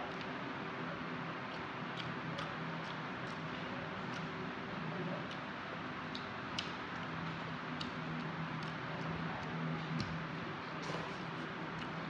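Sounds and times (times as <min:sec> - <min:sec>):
close chewing: 0:01.4 - 0:05.5.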